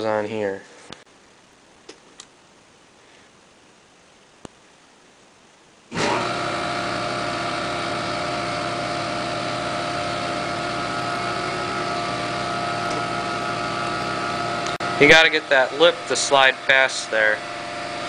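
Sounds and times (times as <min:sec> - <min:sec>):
machine hum of fixed tones: 0:06.0 - 0:18.0.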